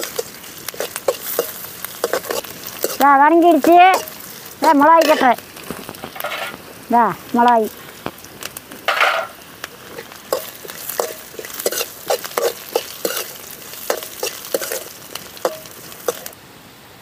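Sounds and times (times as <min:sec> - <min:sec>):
ladle scraping a metal pan: 0:00.0 - 0:05.4, 0:06.1 - 0:06.6, 0:08.9 - 0:16.3
frying sizzle: 0:00.0 - 0:16.4.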